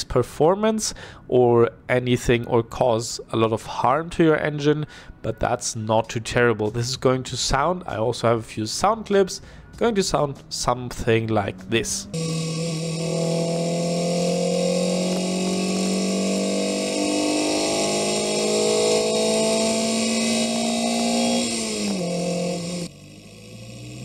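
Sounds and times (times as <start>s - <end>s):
car engine pulling under load: 10.4s - 24.0s.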